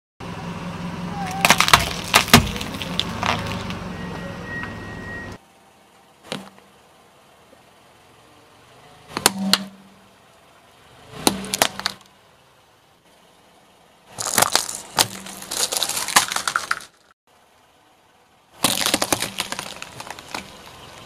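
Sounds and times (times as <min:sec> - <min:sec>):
car tyre rolling: 0:01.4 - 0:21.0.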